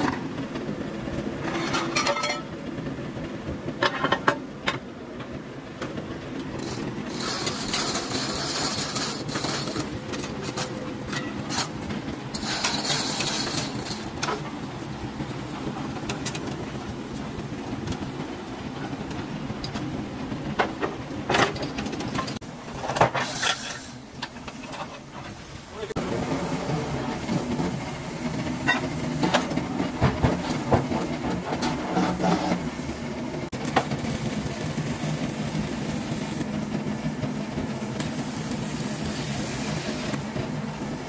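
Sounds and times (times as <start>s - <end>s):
workshop machinery rumble: 0.0s - 41.0s
sharp metal clanks: 1.4s - 2.5s.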